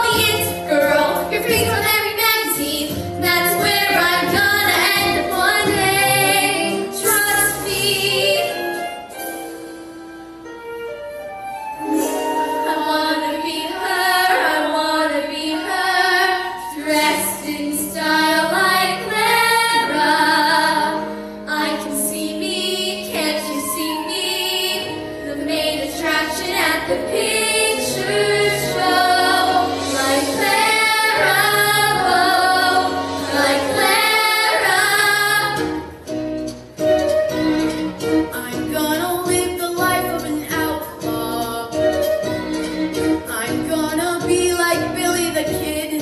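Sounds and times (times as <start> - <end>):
young female voices singing: 0.0 - 8.4, 12.6 - 35.8
instrumental accompaniment: 0.0 - 46.0.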